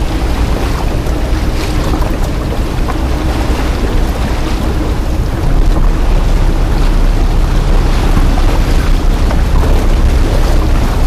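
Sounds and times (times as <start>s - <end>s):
boat engine rumble: 0.0s - 11.0s
water splashing along hull: 0.0s - 11.0s
wind on microphone: 0.0s - 11.0s.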